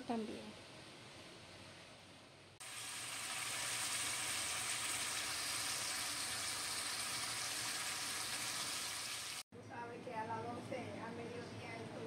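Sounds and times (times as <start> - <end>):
food sizzling and bubbling: 2.6 - 9.5.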